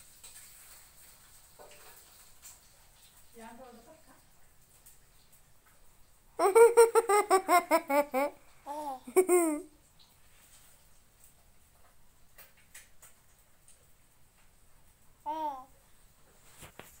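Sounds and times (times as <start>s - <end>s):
young child laughing: 6.4s - 9.7s.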